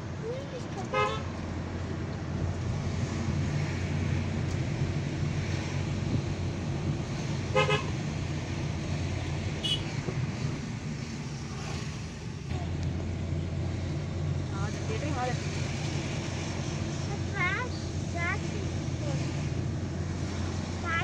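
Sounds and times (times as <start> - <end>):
car engine and road noise: 0.0 - 21.0
car horn toot: 0.9 - 1.2, 7.5 - 8.0, 9.6 - 10.0.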